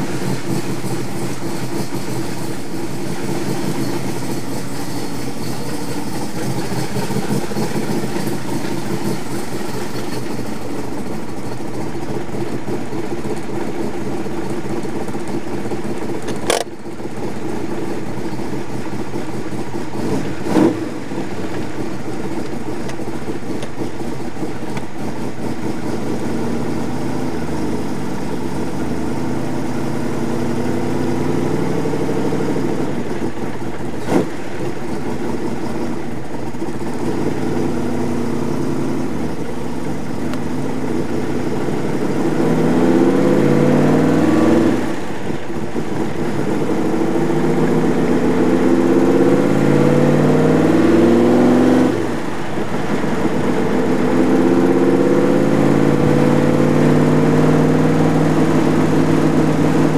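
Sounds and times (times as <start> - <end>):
car engine accelerating: 0.0 - 59.9
sharp click: 16.2 - 16.7.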